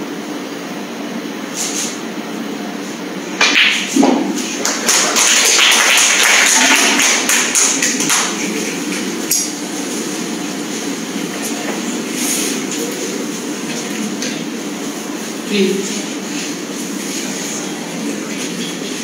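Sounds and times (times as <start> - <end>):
audience applauding: 4.6 - 9.0.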